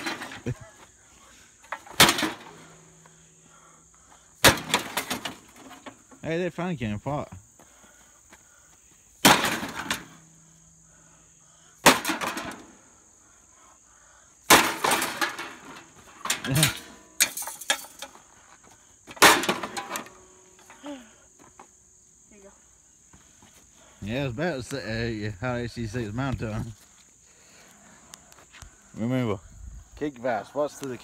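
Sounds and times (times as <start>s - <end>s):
loose metal pieces clattering: 0.0s - 0.6s, 14.5s - 18.2s
high insect buzz: 0.0s - 14.5s, 20.0s - 30.0s.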